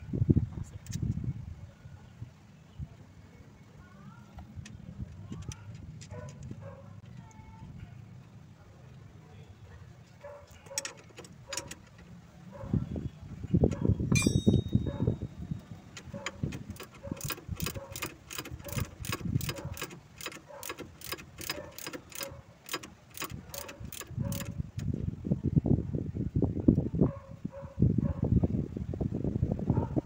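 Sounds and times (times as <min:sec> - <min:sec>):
wind rumble on microphone: 0:00.0 - 0:03.2, 0:12.1 - 0:19.8, 0:23.3 - 0:30.0
metallic clink: 0:14.1 - 0:15.4
ratchet wrench clicking: 0:16.3 - 0:24.8.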